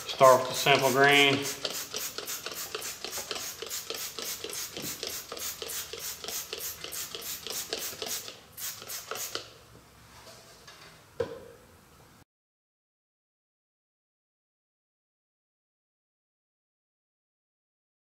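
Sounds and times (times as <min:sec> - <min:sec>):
spray bottle squirting: 0:01.2 - 0:09.5.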